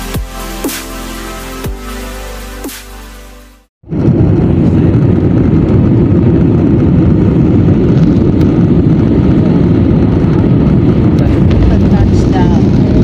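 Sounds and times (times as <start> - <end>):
jet engines roaring: 3.9 - 13.0.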